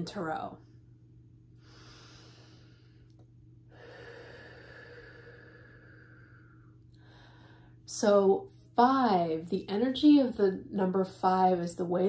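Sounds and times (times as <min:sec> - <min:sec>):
faint low hum: 0:00.0 - 0:12.0
woman breathing softly: 0:01.5 - 0:07.9.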